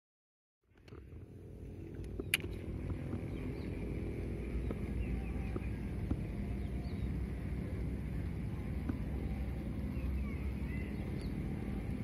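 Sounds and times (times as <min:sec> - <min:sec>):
low rumble: 0:00.7 - 0:12.0
sharp click: 0:02.0 - 0:02.6
faint bird chirps: 0:08.5 - 0:12.0.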